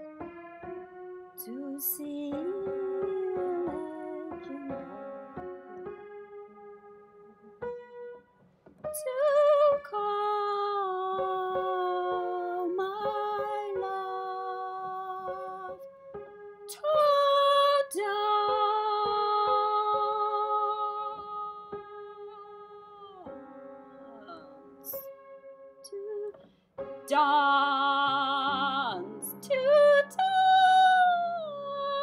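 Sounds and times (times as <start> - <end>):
piano notes: 0.0 - 32.0
woman singing with vibrato: 1.4 - 5.0, 9.0 - 15.8, 16.7 - 25.0, 25.9 - 26.4, 27.1 - 32.0.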